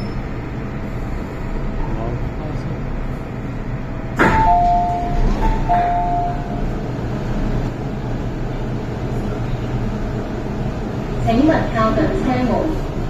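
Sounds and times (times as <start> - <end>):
stopped train humming: 0.0 - 13.0
train door clunk: 4.1 - 7.0
two-note door chime: 4.4 - 6.6.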